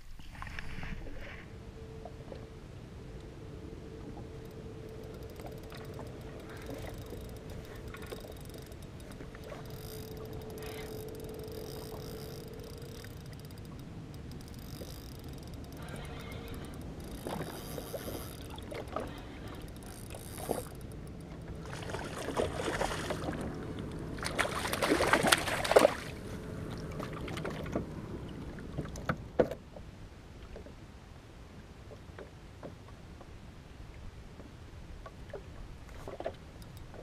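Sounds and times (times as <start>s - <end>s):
water splashing from thrashing fish: 21.6s - 23.5s, 24.2s - 26.2s.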